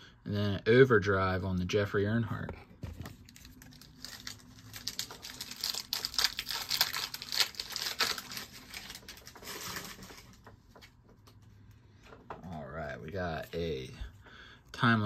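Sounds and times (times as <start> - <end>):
plastic foil wrapper crinkling: 3.2 - 10.4.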